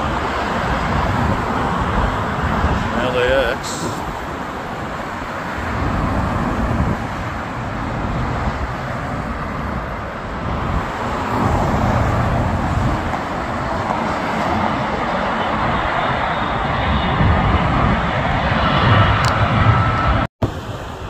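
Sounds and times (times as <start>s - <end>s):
cars passing: 0.0s - 21.0s.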